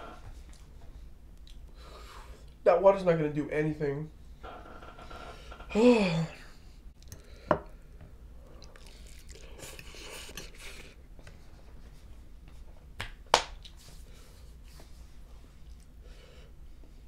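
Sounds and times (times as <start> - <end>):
person chewing noodles: 8.4 - 11.0.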